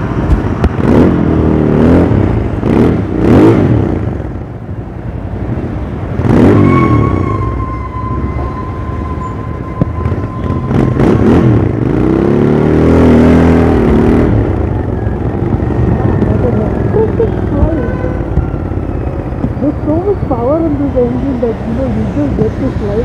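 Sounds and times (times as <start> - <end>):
motorcycle engine revving: 0.4 - 4.4, 9.9 - 22.8.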